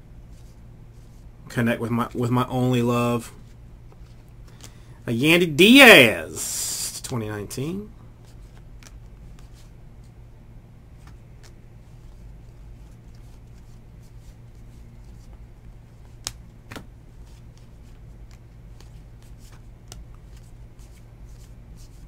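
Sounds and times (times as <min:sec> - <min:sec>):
steady low hum: 0:00.0 - 0:22.0
cards flicking and sliding: 0:08.2 - 0:09.7, 0:15.0 - 0:22.0.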